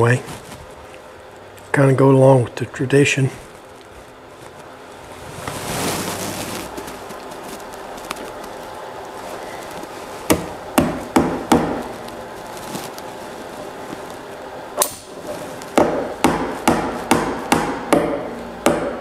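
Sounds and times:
tack hammer tapping: 10.3 - 11.9, 15.7 - 19.0.

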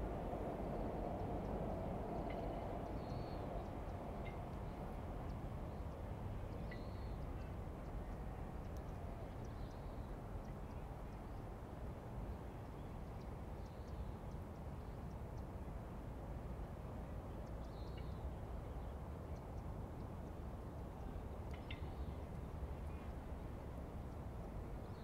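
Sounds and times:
low rumble of background noise: 0.0 - 25.0
small birds chirping: 5.7 - 11.4.

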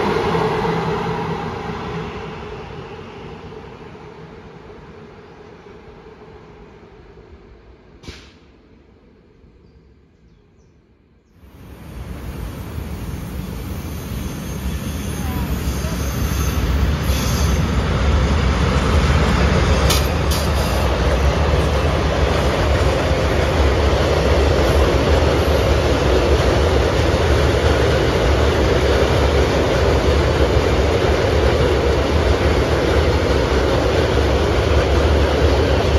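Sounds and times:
train wheels rumbling on rails: 11.5 - 35.9.

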